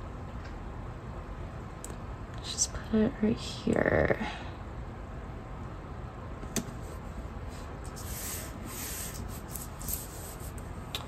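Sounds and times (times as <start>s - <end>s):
fingertips rubbing paper sticker: 7.9s - 10.7s.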